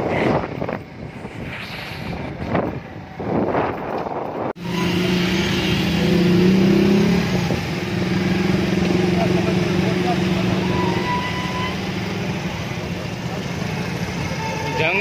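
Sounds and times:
motorcycle and car engines humming: 0.0s - 15.0s
wind and traffic rushing past: 0.0s - 15.0s.

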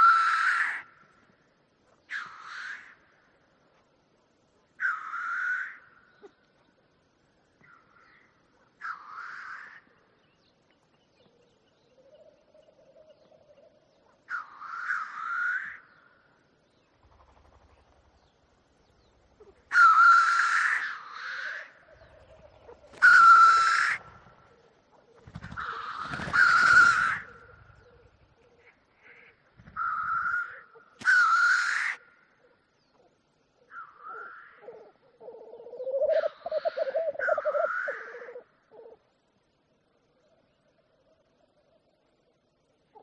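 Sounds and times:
black grouse hissing calls: 8.8s - 9.8s, 25.4s - 32.0s, 33.7s - 39.0s.

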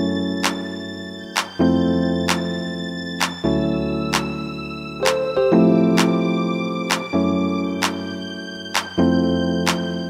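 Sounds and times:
held chords: 1.6s - 8.0s.

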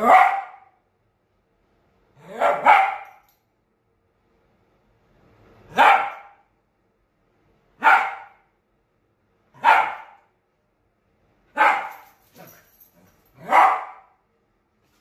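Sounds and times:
dog barking: 0.0s - 0.8s, 2.2s - 3.2s, 5.7s - 6.4s, 7.8s - 8.5s, 9.6s - 10.3s, 11.5s - 12.5s, 13.4s - 14.2s.

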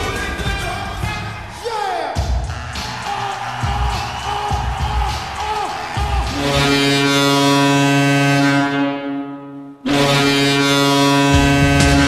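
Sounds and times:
rock music with drums: 0.0s - 1.5s, 2.1s - 6.6s, 11.3s - 12.0s
goal horn blasts: 2.5s - 12.0s.

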